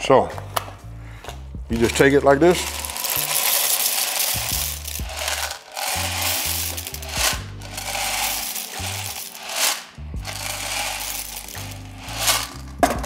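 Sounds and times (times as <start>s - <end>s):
background music with bass line: 0.0s - 13.0s
dry pasta pouring into a pot: 2.5s - 12.8s.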